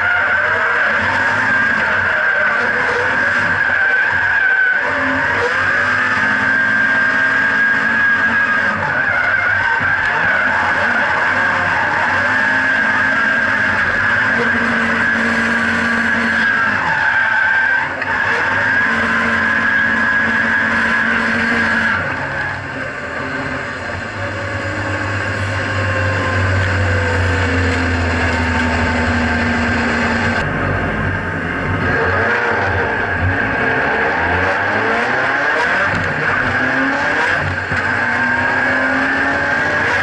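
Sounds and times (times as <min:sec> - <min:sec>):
tyres squealing: 0:00.0 - 0:22.8
car engine at high revs: 0:00.0 - 0:40.0.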